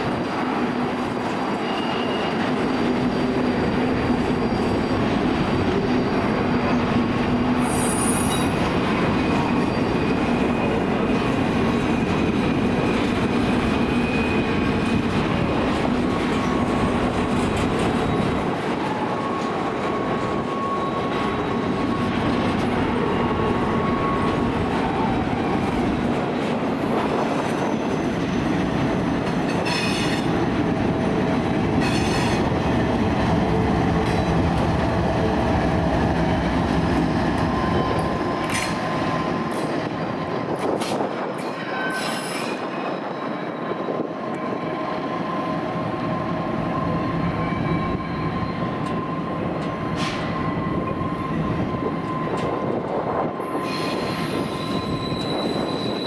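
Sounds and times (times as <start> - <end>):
diesel locomotive engine: 0.0 - 56.0
train wheels rumbling on rail: 0.0 - 56.0
faint wheel squeal: 1.6 - 2.5, 53.5 - 56.0.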